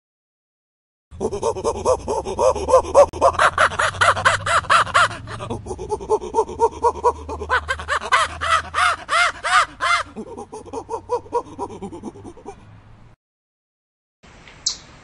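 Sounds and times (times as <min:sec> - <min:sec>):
gibbon hooting calls: 0:01.2 - 0:12.6.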